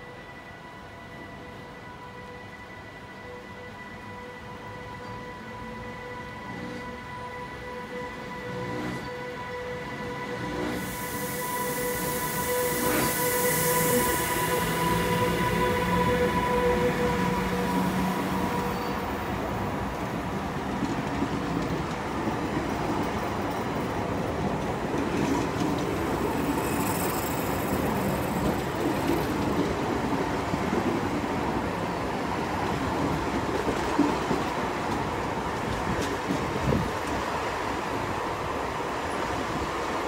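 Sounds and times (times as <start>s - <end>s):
electric locomotive whine: 0.0s - 40.0s
train wheels rumbling on rails: 8.5s - 40.0s.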